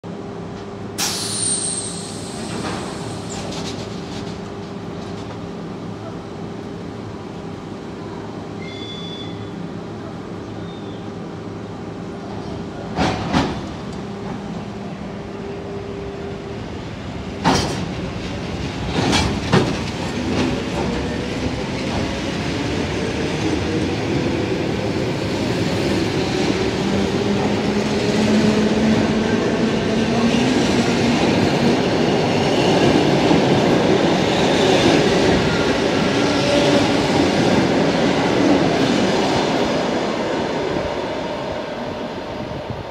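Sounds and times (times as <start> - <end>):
train wheels on rails: 0.5 - 6.2, 12.3 - 14.7, 16.8 - 42.9.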